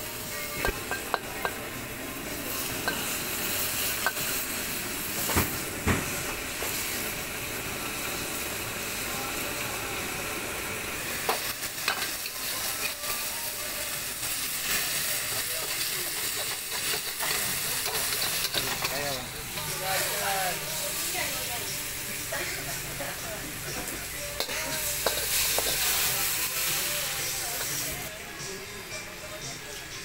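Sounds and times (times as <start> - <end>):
food sizzling in a wok: 0.0 - 30.0
metal ladle scraping a wok: 16.2 - 19.7
ladle clinking against wok: 24.4 - 25.8.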